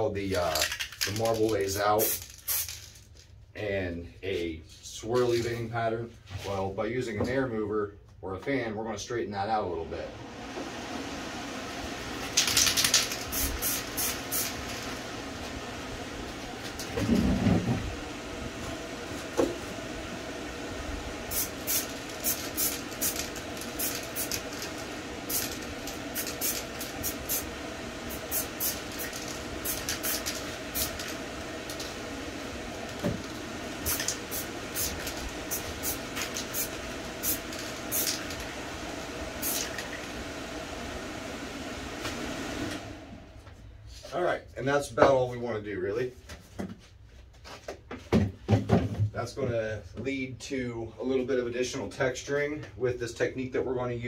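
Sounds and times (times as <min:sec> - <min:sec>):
spray paint hissing: 0:01.9 - 0:03.0, 0:12.4 - 0:14.9, 0:21.3 - 0:27.5, 0:28.1 - 0:31.9, 0:33.8 - 0:38.4, 0:39.4 - 0:40.0
fan drone: 0:03.6 - 0:46.0.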